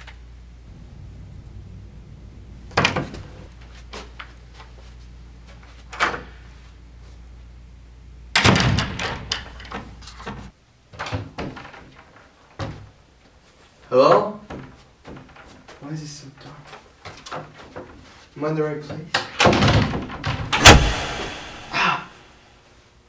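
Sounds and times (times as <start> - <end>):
steady low hum: 0.0 - 8.4, 20.5 - 22.8.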